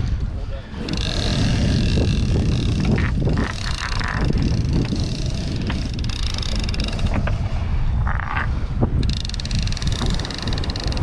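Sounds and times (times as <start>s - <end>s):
water around a boat: 0.0s - 11.0s
wind: 0.0s - 11.0s
short clicks and rattles: 0.8s - 7.4s, 8.1s - 11.0s.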